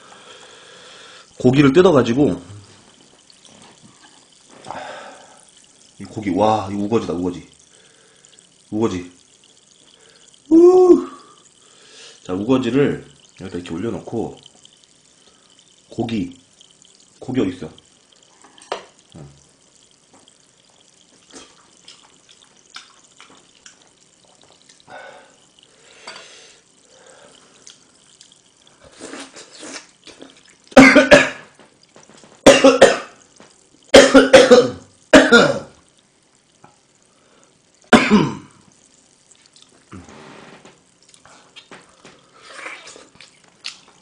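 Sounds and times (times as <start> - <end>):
man chewing: 21.2 - 24.9, 27.5 - 30.6, 41.0 - 44.0
man coughing hard: 30.8 - 31.4, 32.5 - 33.2, 33.9 - 35.7, 37.9 - 38.5.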